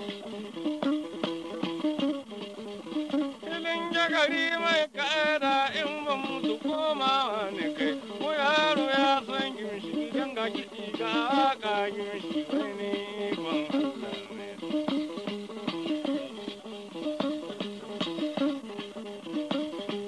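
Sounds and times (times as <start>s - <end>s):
plucked lute playing: 0.0s - 20.0s
person singing with vibrato: 3.4s - 14.8s.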